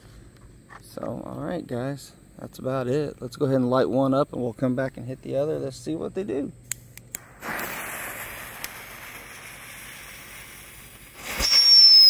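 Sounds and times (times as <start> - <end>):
firework fuse hissing: 6.7 - 12.0
firework spraying sparks with rush: 6.8 - 12.0.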